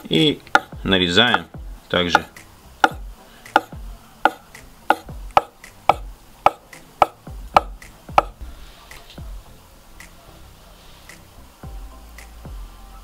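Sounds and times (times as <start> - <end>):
knife chopping on wooden board: 0.5 - 1.5, 2.1 - 8.4.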